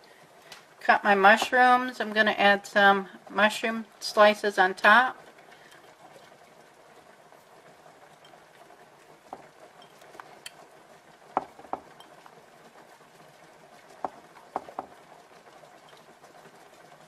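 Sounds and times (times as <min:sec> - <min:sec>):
low kitchen hum: 0:00.0 - 0:17.0
mushrooms tapping on ceramic dish: 0:11.4 - 0:12.0, 0:14.0 - 0:14.9.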